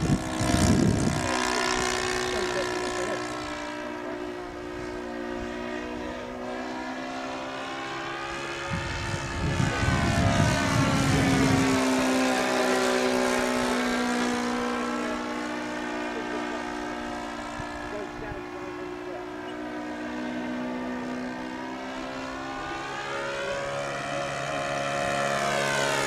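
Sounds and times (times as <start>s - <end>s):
model plane engine drone: 0.0s - 26.0s.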